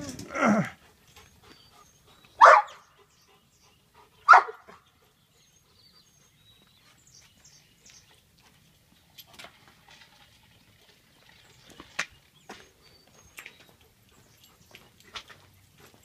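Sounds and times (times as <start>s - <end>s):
dog barking: 2.4s - 2.8s, 4.3s - 4.8s.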